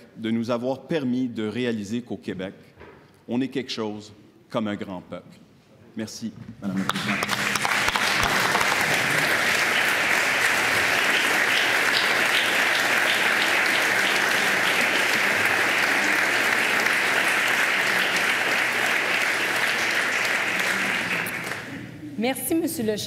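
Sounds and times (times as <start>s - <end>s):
crowd applauding: 6.8s - 22.0s.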